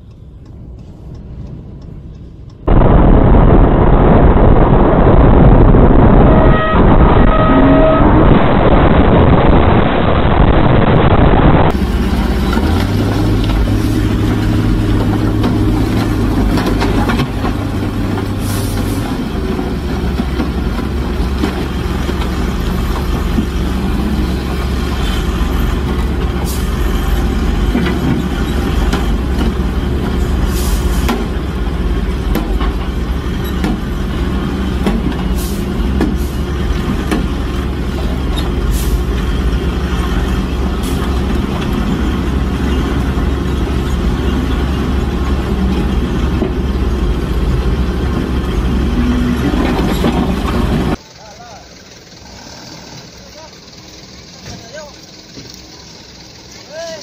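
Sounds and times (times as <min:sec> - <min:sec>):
diesel truck engine running: 0:02.6 - 0:57.0
loud noise: 0:02.7 - 0:19.3.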